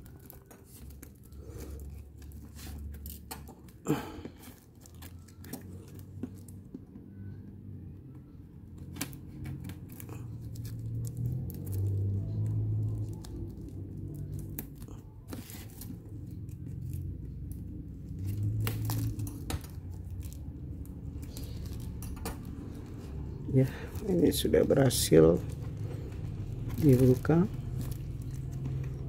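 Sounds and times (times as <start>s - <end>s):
plastic wrap crinkling and tearing: 0.0s - 6.6s, 8.8s - 29.0s.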